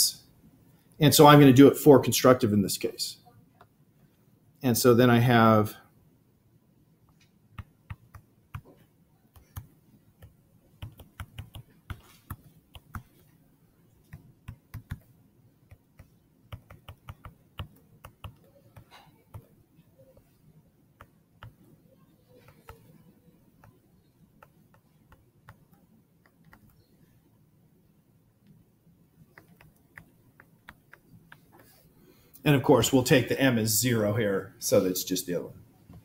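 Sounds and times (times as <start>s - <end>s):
stylus tapping on tablet screen: 7.0s - 13.4s, 14.0s - 20.4s, 21.0s - 21.7s, 22.3s - 26.9s, 29.3s - 31.8s.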